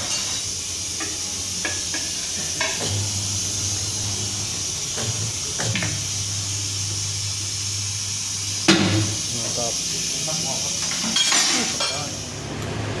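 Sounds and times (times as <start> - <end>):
steady hiss: 0.0 - 12.3
turntable motor humming: 2.6 - 10.7.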